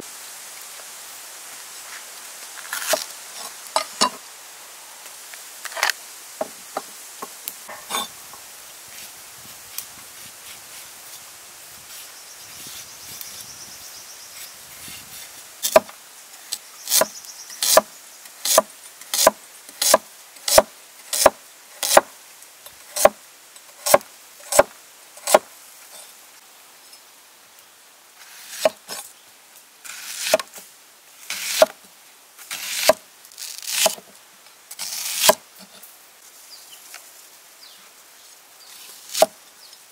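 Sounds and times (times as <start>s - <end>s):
cleaver slicing onion: 34.8s - 35.4s.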